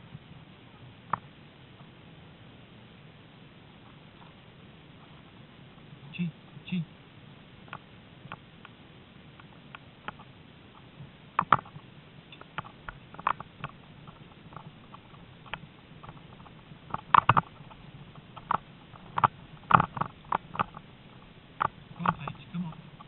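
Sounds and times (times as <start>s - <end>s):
rig clicking and knocking: 11.4s - 23.0s
gear rattling: 12.4s - 23.0s.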